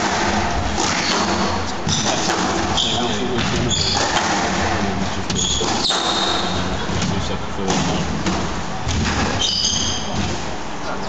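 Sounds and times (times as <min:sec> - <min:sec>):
squash ball knocks: 0:00.0 - 0:10.6
shoes squeaking on floor: 0:00.9 - 0:04.2, 0:05.3 - 0:06.7, 0:09.0 - 0:10.3.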